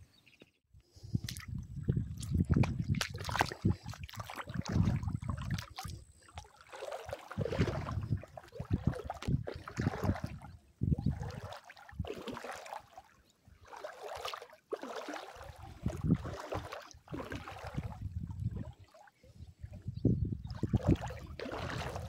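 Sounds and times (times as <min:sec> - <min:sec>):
wind gusting on microphone: 0:00.9 - 0:06.1, 0:07.3 - 0:12.1, 0:15.7 - 0:16.4, 0:17.1 - 0:22.0
small waves lapping: 0:02.1 - 0:19.8, 0:20.4 - 0:22.0.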